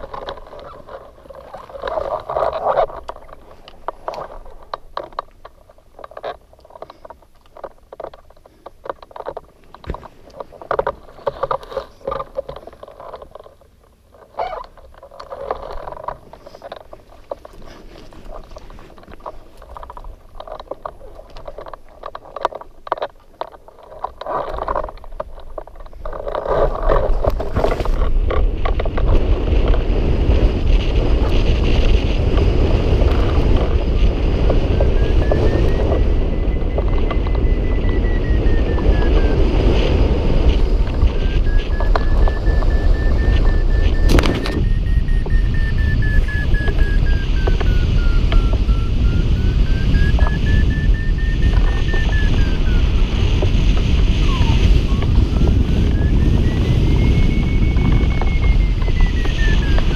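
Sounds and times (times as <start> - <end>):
wind gusts on microphone: 0.0 - 6.4, 23.9 - 59.9
rushing wind with low rumble: 0.0 - 8.3, 8.9 - 59.9
rustling: 0.0 - 29.5.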